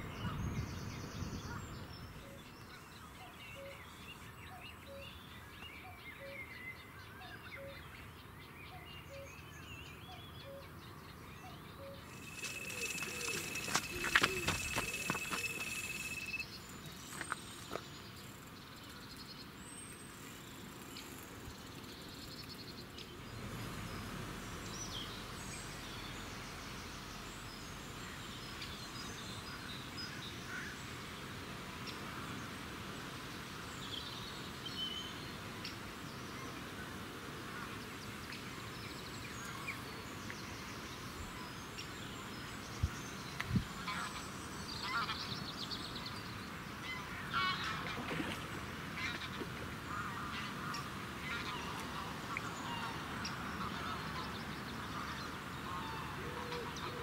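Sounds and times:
bird calls: 11.4 - 18.1, 42.8 - 57.0
bite alarm high tone: 12.1 - 16.4.

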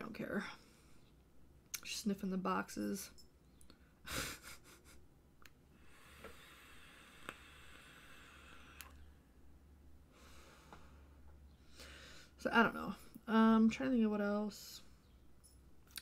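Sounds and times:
breathing through a vape: 5.7 - 9.0, 11.7 - 12.4.

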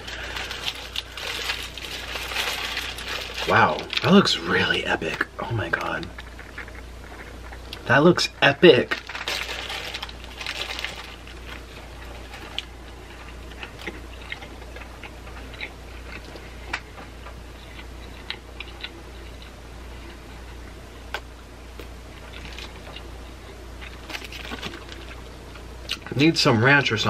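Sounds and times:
chewing with wet mouth clicks: 13.2 - 19.6.

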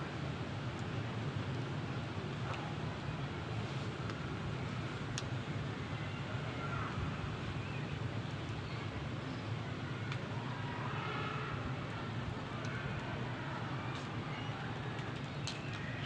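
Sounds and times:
fire rumbling and hissing: 0.0 - 16.0
fire crackles: 0.1 - 6.5, 11.6 - 16.0.

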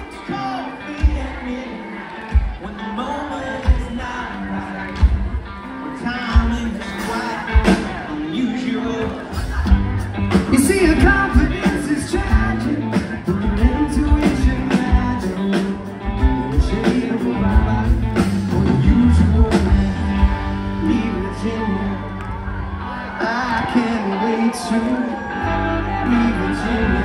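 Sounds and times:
person singing: 0.0 - 27.0
rock band playing live: 0.0 - 27.0.

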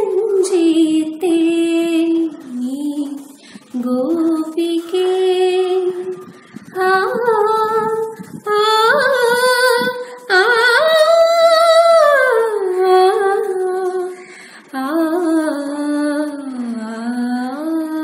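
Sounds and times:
woman singing solo: 0.0 - 18.0
singer breathing: 3.3 - 3.8, 10.0 - 10.3, 14.1 - 14.8.

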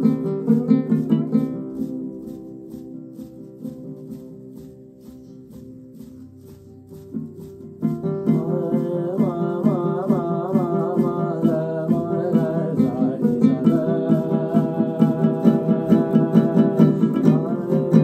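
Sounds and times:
shaker rhythm: 0.0 - 18.0
string instrument bending notes: 0.0 - 18.0.

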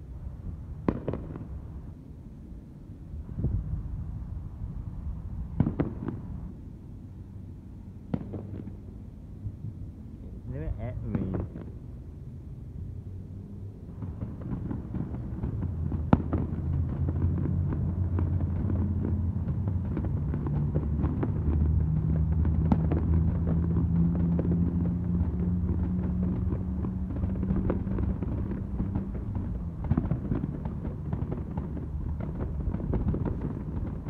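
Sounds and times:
distant fireworks pops and crackles: 0.7 - 2.0, 5.4 - 6.7, 7.3 - 9.4, 10.5 - 12.0, 13.3 - 34.0
firework bang: 0.8 - 1.5, 5.6 - 6.4.

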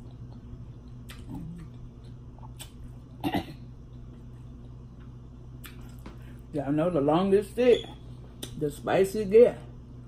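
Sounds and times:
steady low hum: 0.0 - 10.0
woman coughing: 3.2 - 3.7.

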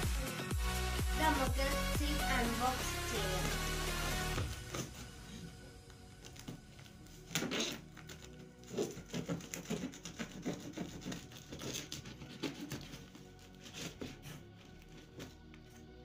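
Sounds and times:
box cutter slitting packing tape: 7.3 - 14.4.

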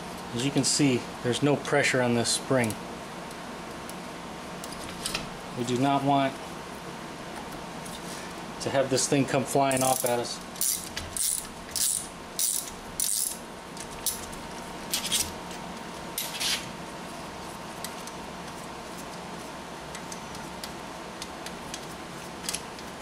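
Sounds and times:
steady background hum: 0.0 - 23.0
metal tools clinking and scraping: 9.7 - 13.4.

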